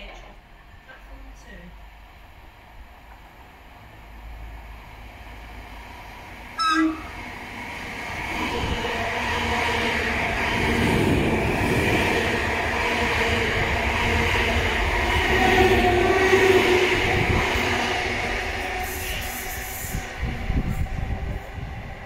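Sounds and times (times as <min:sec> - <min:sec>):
train rumble and wheel noise: 0:00.0 - 0:22.0
train horn blast: 0:06.6 - 0:07.2.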